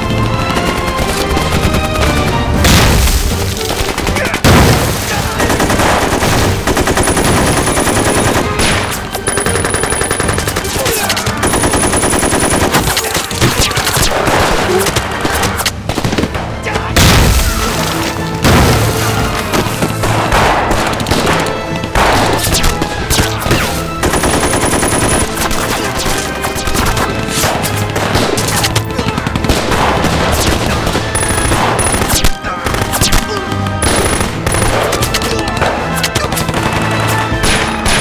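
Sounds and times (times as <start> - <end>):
machine-gun fire: 0.0 - 16.4, 18.4 - 33.2, 33.8 - 35.0, 36.3 - 38.0
rifle shots: 2.6 - 16.4, 18.4 - 33.2, 33.8 - 35.1
explosion booms: 4.4 - 5.1.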